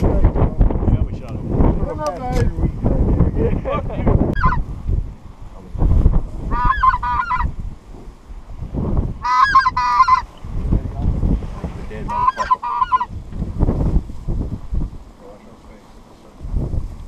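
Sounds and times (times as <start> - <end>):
wind rumble on microphone: 0.0 - 17.0
goose honking calls: 4.4 - 4.6, 6.5 - 7.5, 9.2 - 10.3, 12.0 - 13.1.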